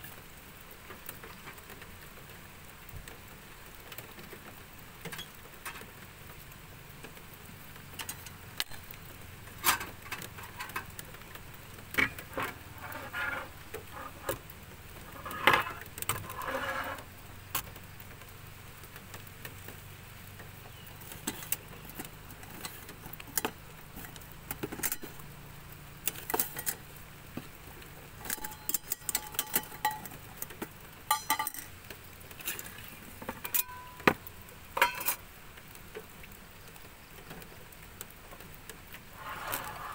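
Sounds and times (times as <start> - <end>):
rain patter: 0.0 - 39.9
rustling: 8.0 - 25.4, 38.3 - 39.9
metal cookware clinking: 28.2 - 30.2, 31.1 - 31.7, 33.4 - 34.2, 34.8 - 35.2.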